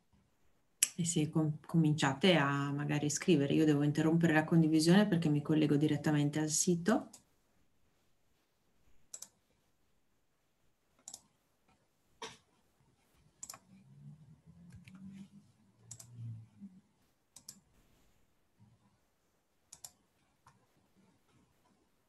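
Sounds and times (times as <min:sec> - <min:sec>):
computer mouse clicks: 0:09.1 - 0:09.4, 0:11.0 - 0:11.8, 0:13.3 - 0:13.8, 0:15.8 - 0:16.4, 0:17.3 - 0:17.7, 0:19.7 - 0:20.7
faint low murmur: 0:13.6 - 0:19.2.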